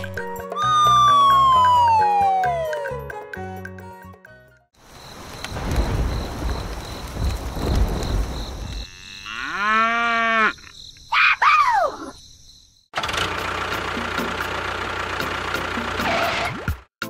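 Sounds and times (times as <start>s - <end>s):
steady hiss with faint clicks: 4.8s - 8.8s
cow mooing: 8.8s - 10.6s.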